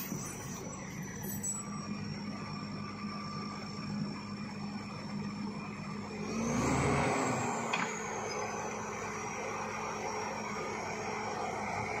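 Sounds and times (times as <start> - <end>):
bulldozer diesel engine revving: 6.0 - 12.0.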